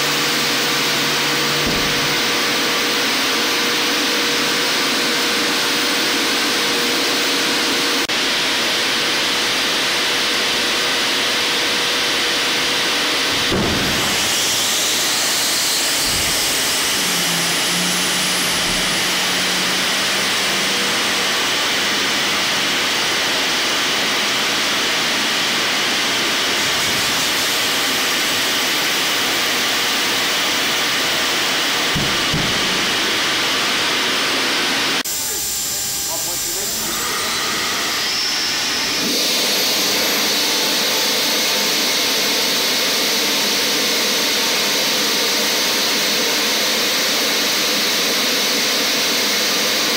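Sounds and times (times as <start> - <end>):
hydraulic pumps hissing and whining: 0.0 - 49.9
sharp mechanical clunk: 1.6 - 2.1
dull thuds: 1.6 - 2.3.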